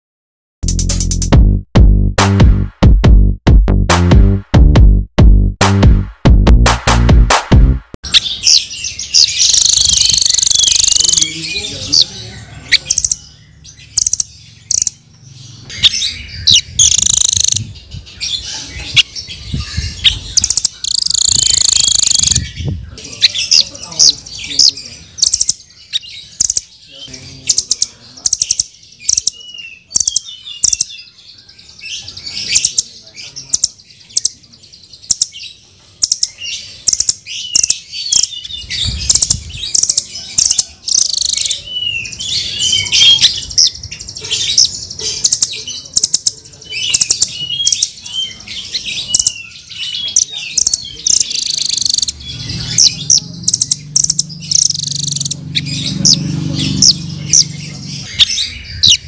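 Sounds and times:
bird chirps and ticks: 8.1 - 12.1, 12.7 - 17.6, 18.4 - 22.4, 23.2 - 31.2, 32.0 - 34.4, 35.0 - 41.6, 43.0 - 48.0, 49.1 - 59.0.

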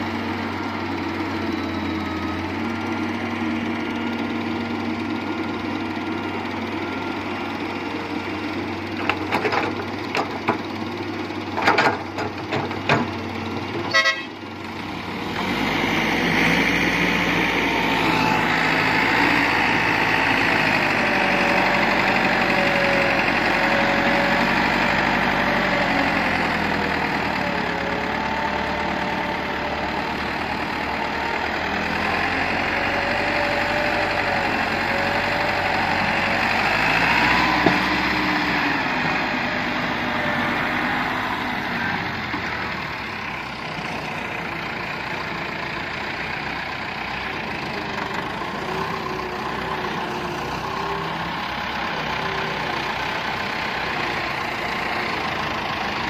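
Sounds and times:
diesel engines running: 0.0 - 56.0.

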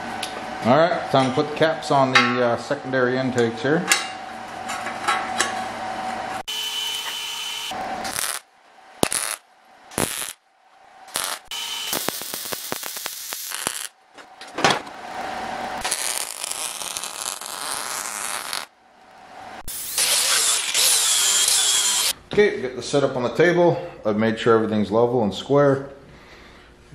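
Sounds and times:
welder crackling and sizzling: 6.9 - 8.4, 9.0 - 9.4, 10.0 - 10.4, 11.1 - 14.0, 15.0 - 18.7, 19.6 - 22.1.

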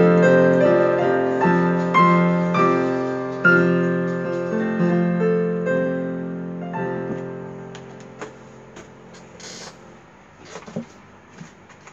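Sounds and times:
digital piano chords: 0.0 - 10.3
short rustle: 7.8 - 11.9.

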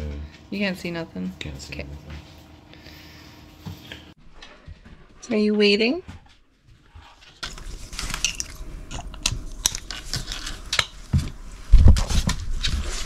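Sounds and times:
fabric rubbing on microphone: 10.0 - 13.0.

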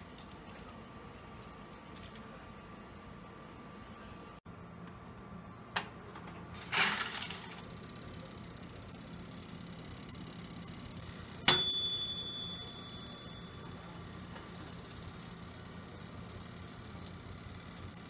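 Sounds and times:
timer bell ding: 11.5 - 14.2.

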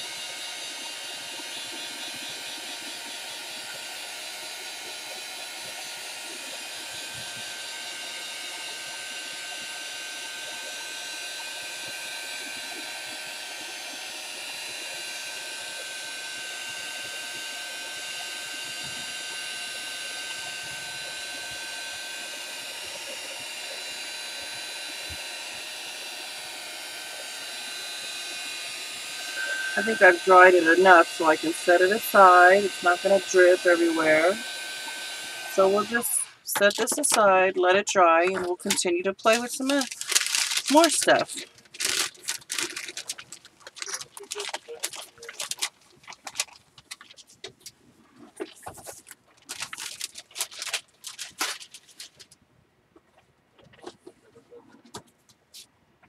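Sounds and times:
heat tool blowing air: 0.0 - 37.3, 40.6 - 41.5.

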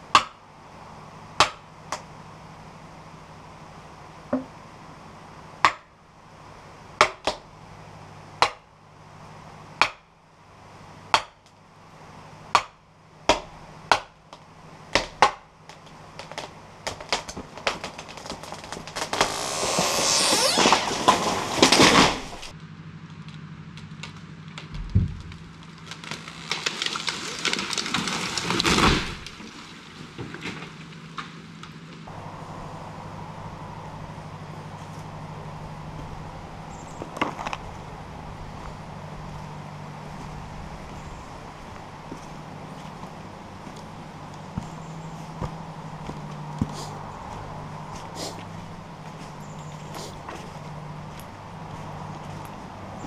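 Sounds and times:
tree trunk cracking: 15.0 - 32.1
brush breaking: 16.2 - 22.5
tree crashing through branches: 16.2 - 22.5, 24.0 - 31.4.

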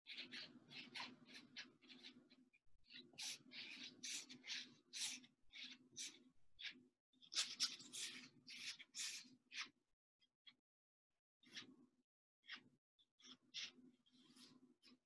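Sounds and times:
paintbrush scrubbing on canvas: 0.1 - 6.7.

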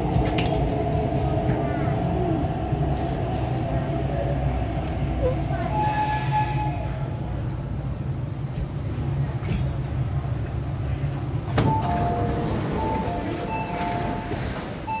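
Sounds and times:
train rumbling: 0.0 - 15.0
two-tone door warning beeps: 11.7 - 15.0.

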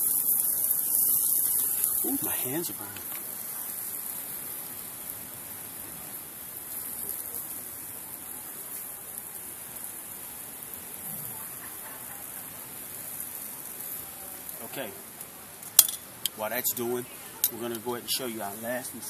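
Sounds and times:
fish sizzling on a grill: 0.0 - 19.0.

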